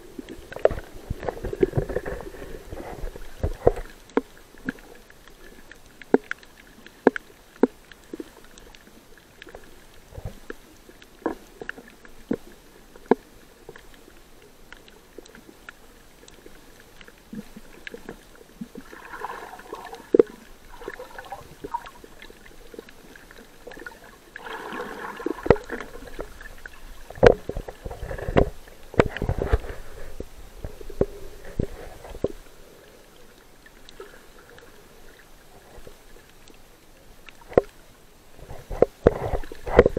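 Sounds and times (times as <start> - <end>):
underwater bubbling and gurgling: 0.0 - 39.9
underwater clicks and knocks: 0.2 - 4.8, 23.6 - 32.4, 37.2 - 37.8, 38.4 - 39.9.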